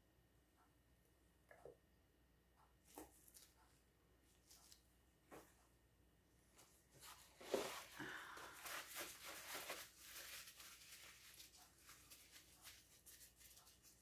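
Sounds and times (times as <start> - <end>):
gloved hands rubbing together: 8.6 - 14.0.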